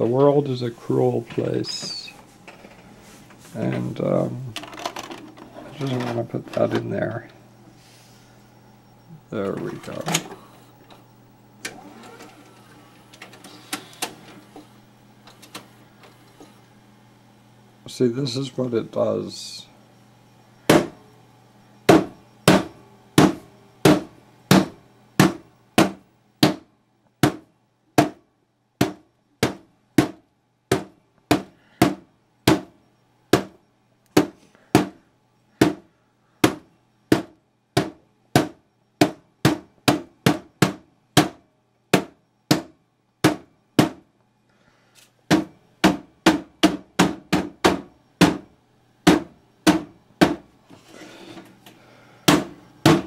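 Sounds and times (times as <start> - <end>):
knocks on television cabinet: 20.7 - 21.0, 21.9 - 28.2, 28.8 - 32.7, 33.3 - 33.6, 35.6 - 35.8, 36.4 - 44.0, 45.3 - 48.4, 49.1 - 50.4, 52.3 - 53.0.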